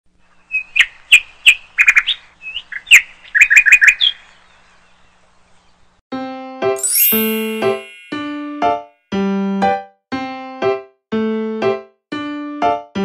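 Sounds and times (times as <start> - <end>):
bird chirps and tweets: 0.3 - 6.0
high shimmering sparkle: 6.8 - 8.6
bright keyboard jingle: 6.8 - 8.8.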